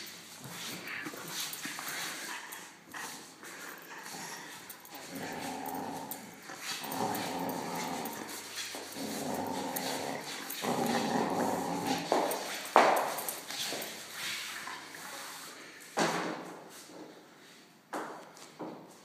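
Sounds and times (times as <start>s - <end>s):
dog growling in play: 2.2s - 12.6s.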